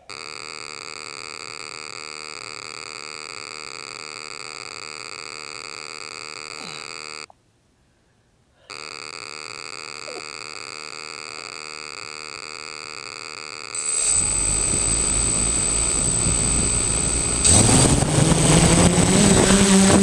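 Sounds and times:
drone motors whining: 13.8s - 20.0s
steady electronic buzz: 13.8s - 20.0s.

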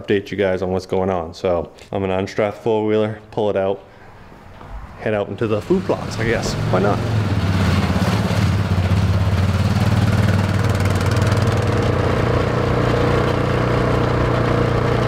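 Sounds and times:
atv engine running: 5.6s - 15.0s.

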